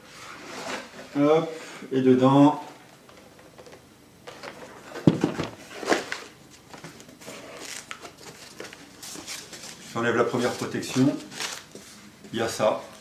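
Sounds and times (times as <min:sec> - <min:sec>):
cardboard and foam rustling: 0:04.9 - 0:12.0.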